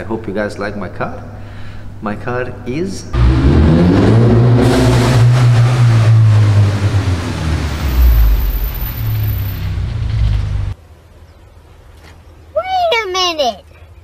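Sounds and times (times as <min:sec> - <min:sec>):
car engine low drone: 0:03.2 - 0:10.8.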